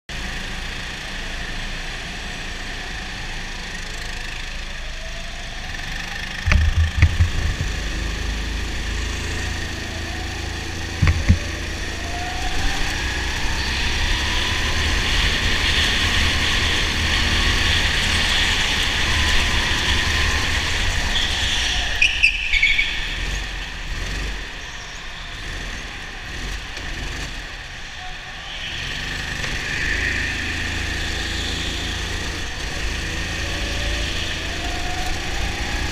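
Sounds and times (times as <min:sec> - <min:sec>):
go-kart engine accelerating: 0:00.1 - 0:35.9
heavy thumps: 0:06.5 - 0:08.0, 0:11.0 - 0:11.8.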